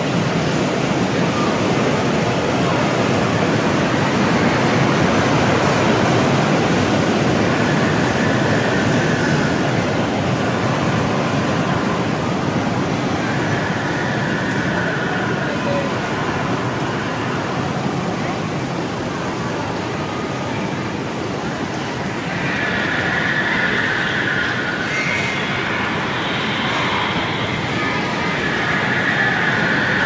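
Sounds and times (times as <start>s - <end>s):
bumper cars rolling: 20.7s - 30.0s.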